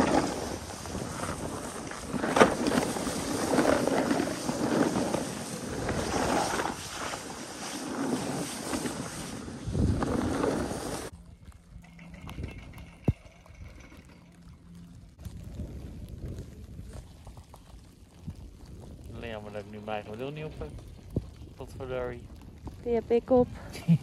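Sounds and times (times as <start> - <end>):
snowboard sliding over snow: 0.0 - 11.1
wind buffeting microphone: 0.0 - 23.8.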